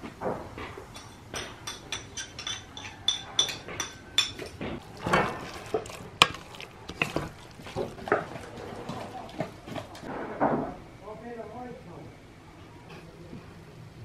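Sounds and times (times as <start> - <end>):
metal spoon clinking on bowl: 1.0 - 8.4
wooden spoon stirring thick mixture: 4.8 - 10.1.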